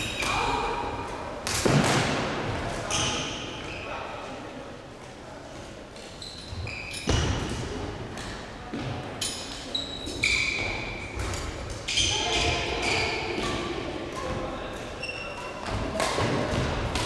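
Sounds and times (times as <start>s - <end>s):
shoes squeaking on floor: 2.8s - 4.0s, 6.0s - 7.3s, 9.2s - 13.6s, 14.9s - 16.0s.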